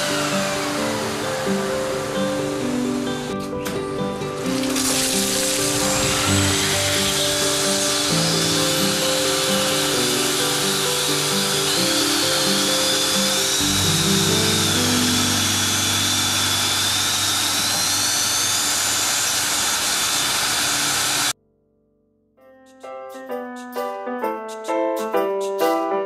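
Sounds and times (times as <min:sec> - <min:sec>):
suction machine whistling whine: 0:00.0 - 0:03.7, 0:04.5 - 0:21.3
background music: 0:00.0 - 0:17.2.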